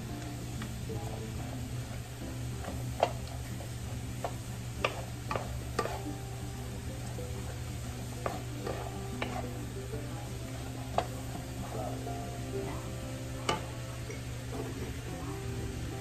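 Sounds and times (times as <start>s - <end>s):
food sizzling in a wok: 0.0s - 16.0s
wooden spatula scraping and knocking: 2.6s - 6.2s, 7.0s - 12.0s.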